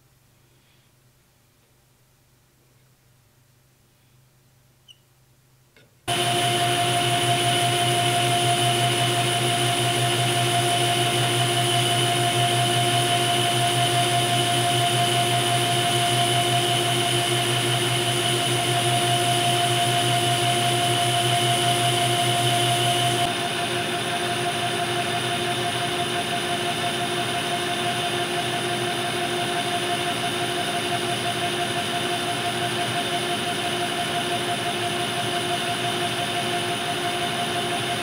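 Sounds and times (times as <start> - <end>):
metal lathe humming and whining: 6.1 - 38.0.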